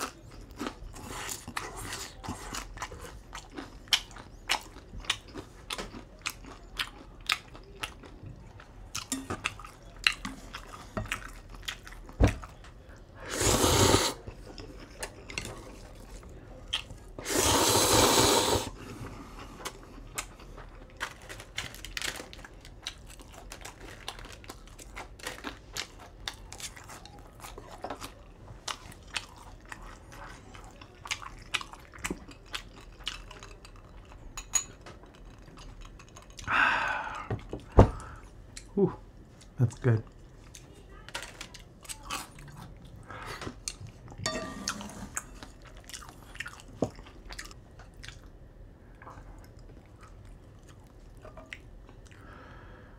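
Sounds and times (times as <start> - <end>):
chewing noodles: 0.0 - 36.6, 45.2 - 52.4
slurping noodles: 13.2 - 14.3, 17.2 - 18.9.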